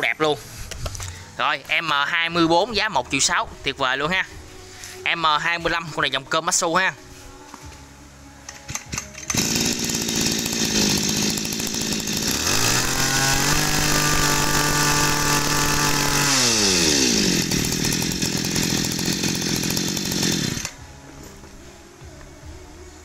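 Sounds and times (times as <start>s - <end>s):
brush cutter engine revving: 8.7s - 20.8s.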